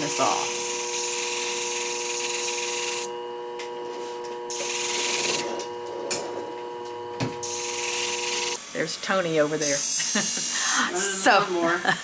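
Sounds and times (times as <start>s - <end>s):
blade grinding on wheel: 0.0s - 8.6s
machine motor hum: 0.0s - 9.2s.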